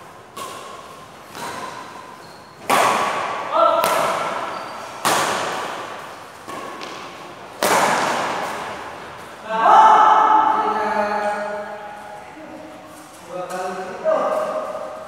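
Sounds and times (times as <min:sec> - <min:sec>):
rackets striking shuttlecock: 0:00.2 - 0:09.3
player shouting: 0:09.4 - 0:11.1.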